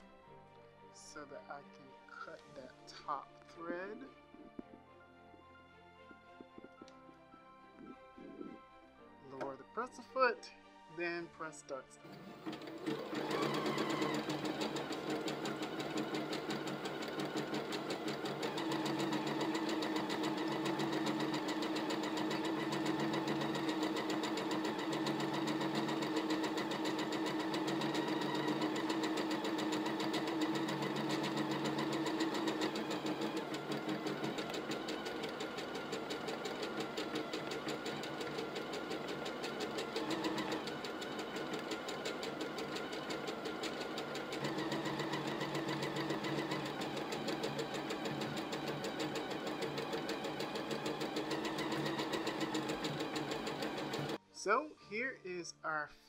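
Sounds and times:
embroidery machine stitching: 12.0 - 54.2.

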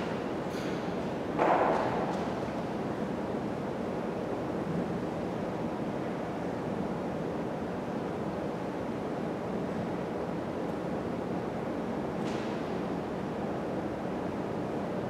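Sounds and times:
room noise hiss and rumble: 0.0 - 15.0.

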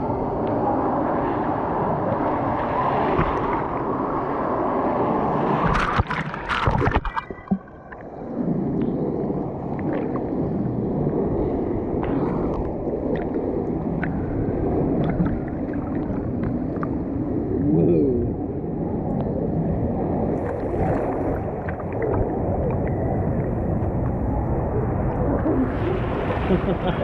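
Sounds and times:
water churning and sloshing: 1.1 - 17.6, 20.2 - 27.0
water splashes crackling: 5.5 - 11.1, 11.7 - 17.2, 20.4 - 27.0.

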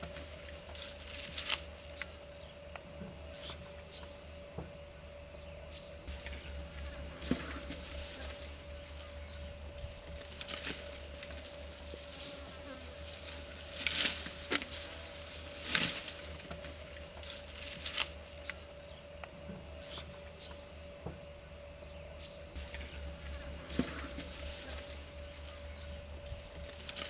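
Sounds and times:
grass rustling as pulled: 0.0 - 2.1, 6.1 - 18.6, 22.6 - 27.0
buzzing drone: 0.0 - 27.0.

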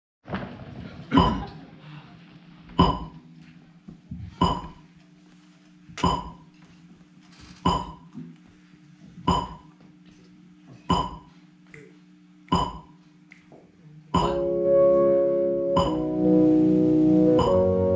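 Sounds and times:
steady low hum: 1.1 - 17.9
metronome ticking: 17.4 - 17.7.

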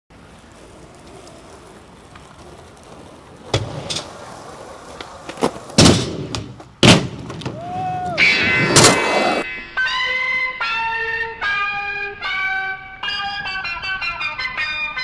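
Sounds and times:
skateboard wheels clacking on ramp: 0.1 - 9.2
skateboard cracking on ground: 0.1 - 9.4.

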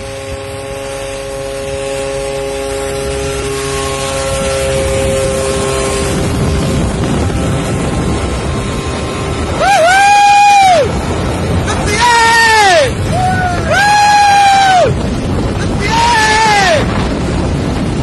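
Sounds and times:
airplane engine droning: 0.0 - 18.0
rushing noise: 0.0 - 18.0
person shouting: 9.6 - 10.9, 11.6 - 15.0, 15.6 - 16.9.

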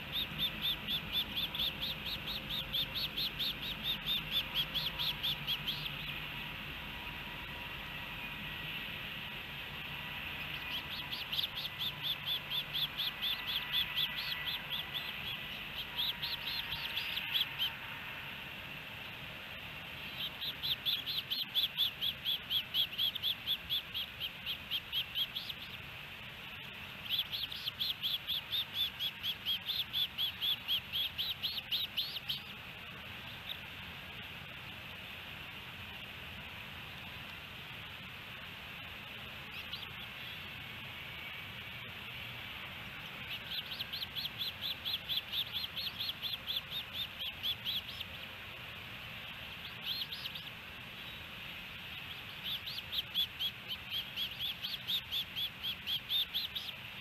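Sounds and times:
osprey chirping: 0.0 - 6.4, 10.2 - 17.8, 19.8 - 33.7, 39.4 - 41.4, 42.1 - 57.0.

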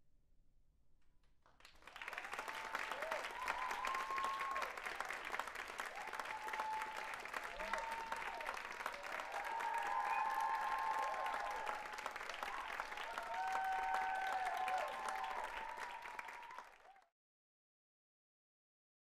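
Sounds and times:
audience applauding: 1.6 - 17.1
drawn-out cheers: 2.0 - 17.0.

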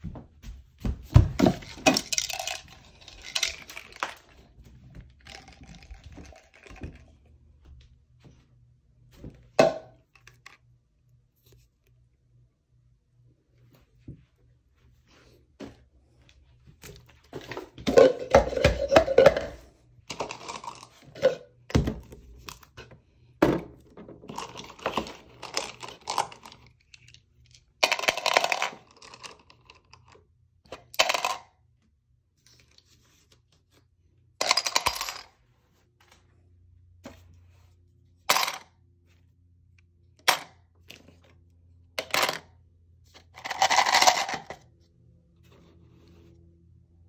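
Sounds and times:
dice rattling in plastic jar: 1.4 - 4.5, 5.1 - 7.1, 17.9 - 21.4, 24.3 - 31.6, 34.4 - 35.4, 38.3 - 38.7, 42.0 - 42.5, 43.2 - 44.6.

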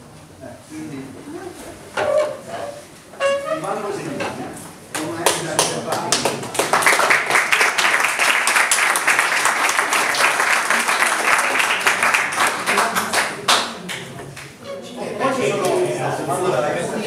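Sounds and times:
audience applauding: 5.0 - 14.6.

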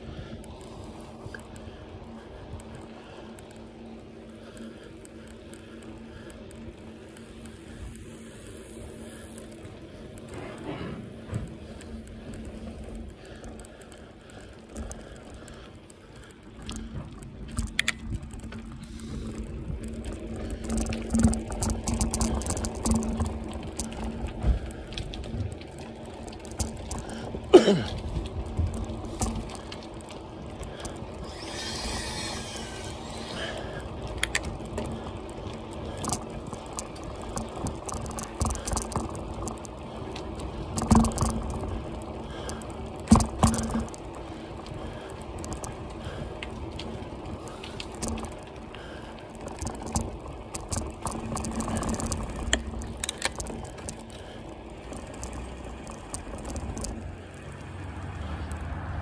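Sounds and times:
bicycle rattling on rough concrete: 0.0 - 59.0
bicycle knocking over bumps: 10.2 - 13.7, 16.4 - 57.2.

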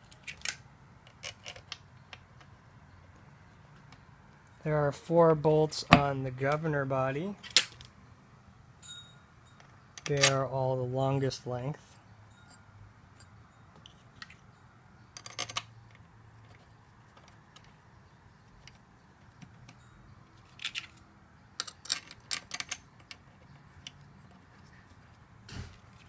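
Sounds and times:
small steel bolts clicking: 0.0 - 2.5, 9.6 - 10.5, 12.4 - 16.6, 18.6 - 24.1.

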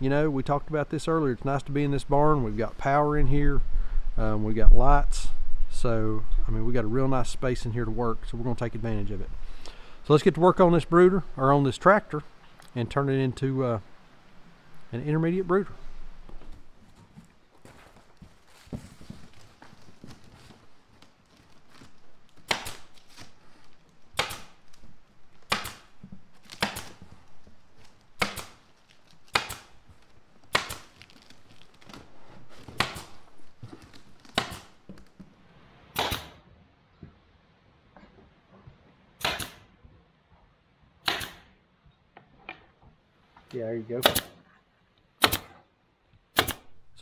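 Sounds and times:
handling noise: 15.5 - 35.4
pneumatic staple gun firing: 36.0 - 36.4, 39.2 - 39.6, 41.0 - 41.4, 45.2 - 45.6, 46.3 - 46.7.

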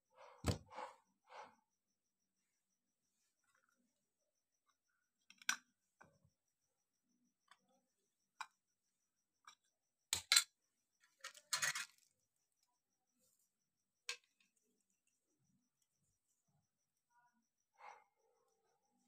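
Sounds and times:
plastic parts and tools clicking: 10.2 - 12.1.

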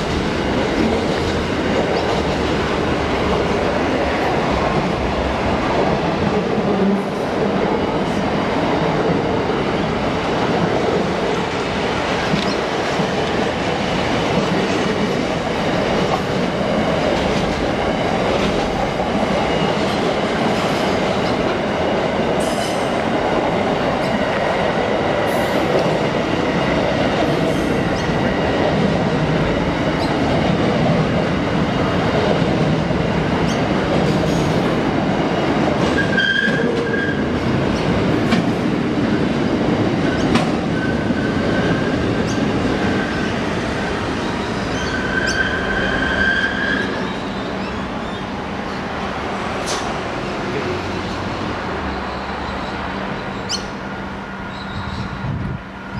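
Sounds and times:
train wheels rumbling on rail: 0.0 - 55.9
high wheel squeals: 44.6 - 48.2.

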